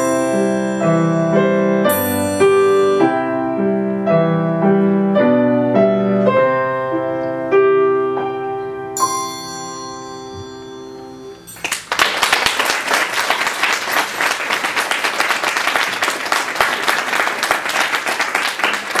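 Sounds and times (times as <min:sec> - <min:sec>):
piano chord: 0:00.0 - 0:11.8
audience applause: 0:11.5 - 0:19.0.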